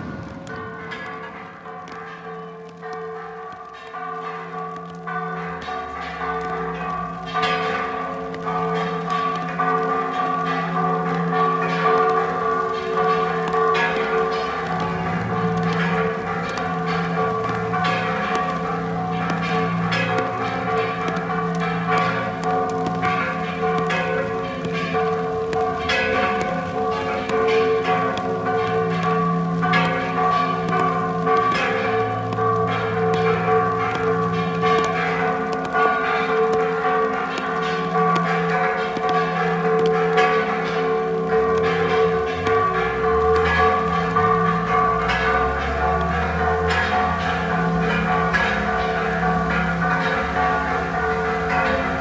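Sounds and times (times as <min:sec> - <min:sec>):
church bells ringing: 0:00.0 - 0:52.0.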